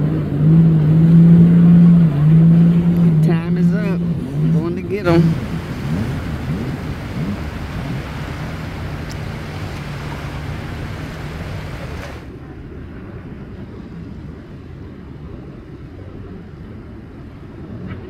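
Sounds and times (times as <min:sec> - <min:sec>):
boat engine hum: 0:00.0 - 0:13.0
wind and water noise: 0:00.0 - 0:18.0
low rumble: 0:00.6 - 0:12.4.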